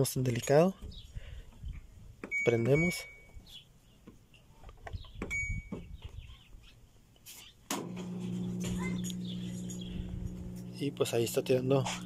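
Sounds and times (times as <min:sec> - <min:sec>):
washing machine beep: 0:02.3 - 0:03.4, 0:05.3 - 0:05.8
drain pump humming: 0:07.8 - 0:11.7.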